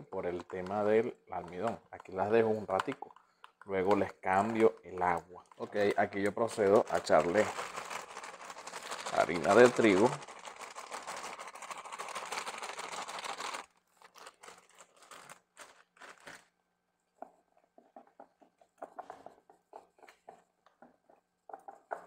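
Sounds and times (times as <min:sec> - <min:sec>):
plastic bag crinkling: 0:00.0 - 0:16.6
flour pouring hiss: 0:05.8 - 0:13.6.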